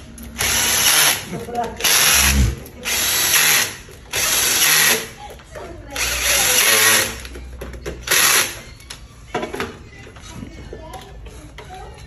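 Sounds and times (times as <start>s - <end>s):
cordless drill whirring: 0.4s - 1.2s, 1.8s - 5.0s.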